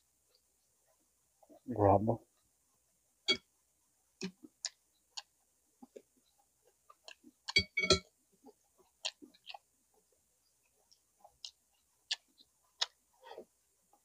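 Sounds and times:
person chewing food: 4.2 - 14.0
wet mouth clicks and lip smacks: 11.4 - 13.0.

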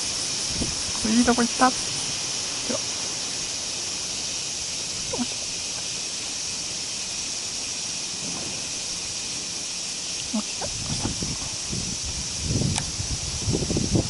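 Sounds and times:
wind rumble on microphone: 0.0 - 3.0, 10.3 - 14.0
high-pitched insect drone: 0.0 - 14.0.

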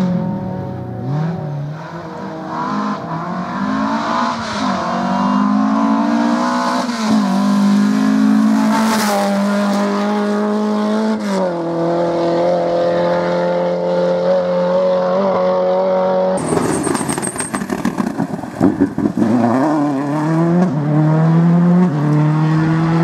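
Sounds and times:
rally car engine revving: 0.0 - 16.7, 18.6 - 23.0.

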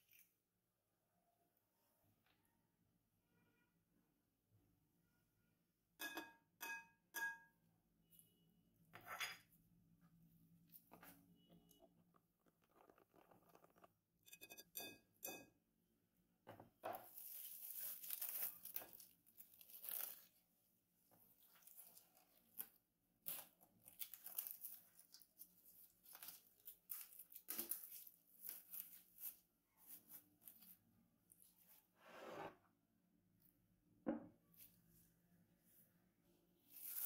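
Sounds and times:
cling film crinkling and tearing: 17.2 - 20.4.

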